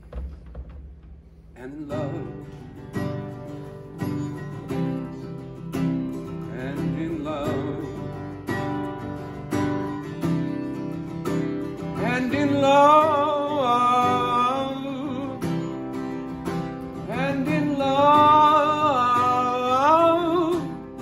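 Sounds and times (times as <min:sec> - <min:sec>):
man singing wordless phrases: 0:01.6 - 0:02.8, 0:06.3 - 0:08.4, 0:11.9 - 0:15.7, 0:17.0 - 0:21.0.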